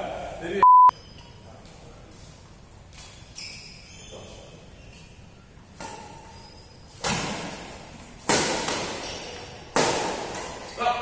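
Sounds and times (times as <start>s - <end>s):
racket hitting shuttlecock: 7.0s - 10.7s.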